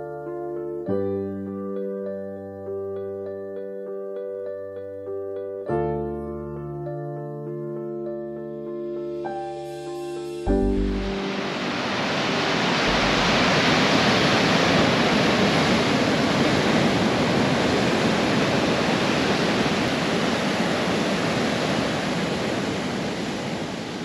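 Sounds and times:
heavy surf on rocky shore: 10.5 - 24.0.

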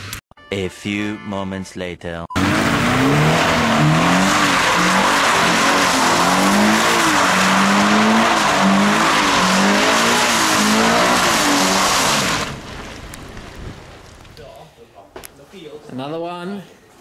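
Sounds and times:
car engine revving: 2.4 - 13.0.

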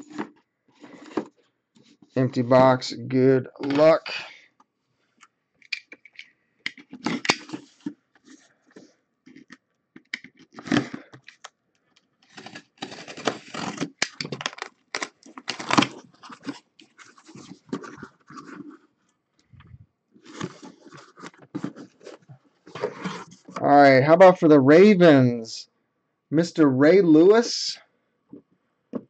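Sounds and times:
cardboard scratching and scraping: 0.0 - 1.4, 12.3 - 14.0, 15.0 - 18.9, 20.2 - 23.6
box cutter slitting tape: 12.3 - 14.4.

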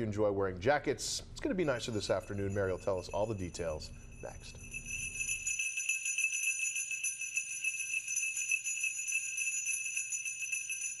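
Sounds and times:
sleigh bells jingling: 1.4 - 11.0.

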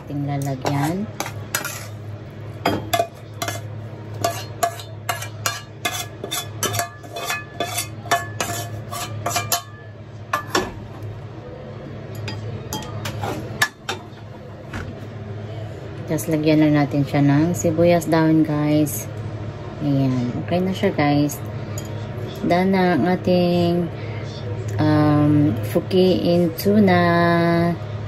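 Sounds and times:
steady low hum: 0.0 - 28.0
spatula scraping a saucepan: 0.4 - 2.1, 2.9 - 9.8.

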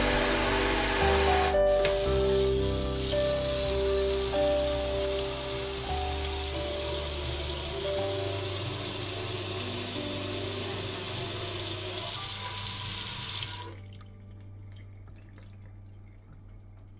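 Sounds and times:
faucet water running into sink: 0.0 - 14.2
faint water drips: 11.9 - 16.9.

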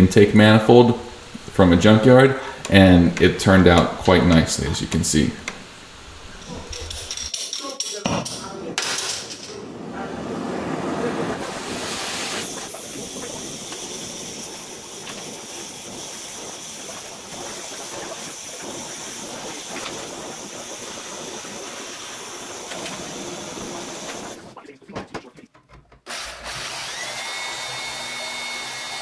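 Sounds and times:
welding torch flame hissing: 0.0 - 7.5, 10.2 - 24.6.

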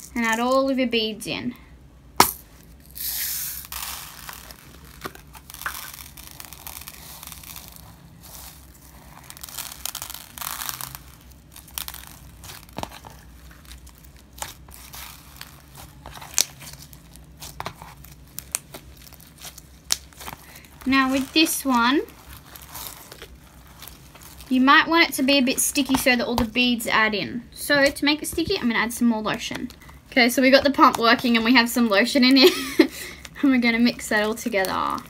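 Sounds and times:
beads pouring: 2.2 - 24.8
slime being kneaded: 2.3 - 26.9, 27.7 - 32.4, 33.2 - 35.0.

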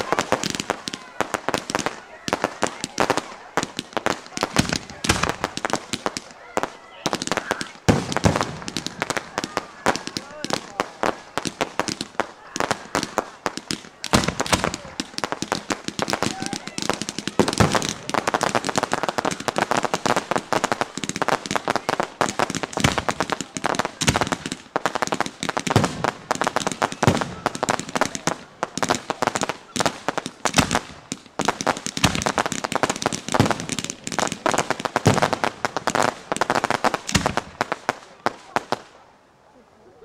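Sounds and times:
fireworks bangs: 0.0 - 39.0
fireworks crackling and popping: 0.0 - 39.2.

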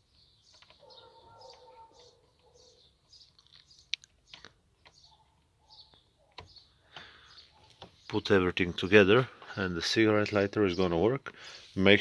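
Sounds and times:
bird chirping: 0.0 - 12.0
plastic clicks: 3.2 - 5.1.

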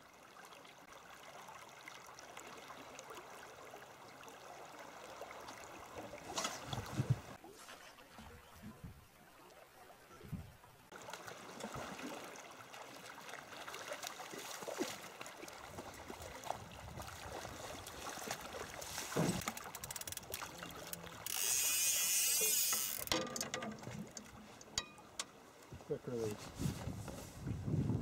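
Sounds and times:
knocks and clicks from boat: 19.0 - 21.4, 22.4 - 25.9.

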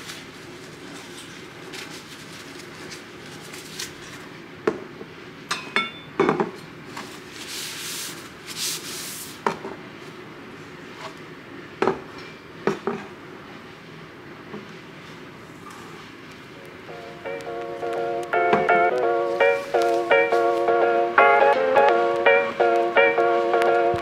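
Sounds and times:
cloth wiping a shelf: 7.0 - 9.4.

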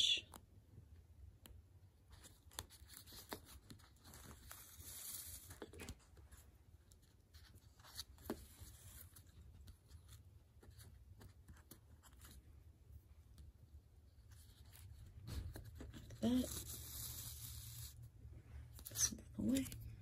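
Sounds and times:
paper pages clicking and tapping: 1.4 - 6.2.

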